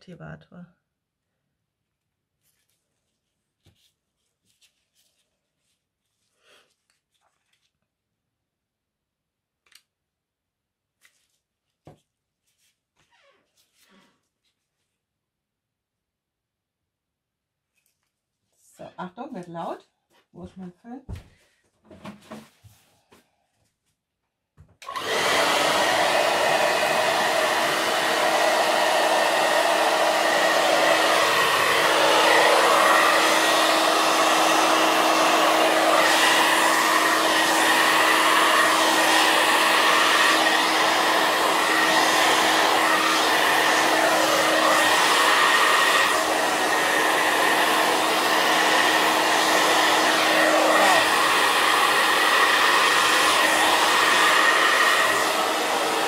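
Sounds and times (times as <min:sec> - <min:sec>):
hair dryer running: 0:24.8 - 0:56.0.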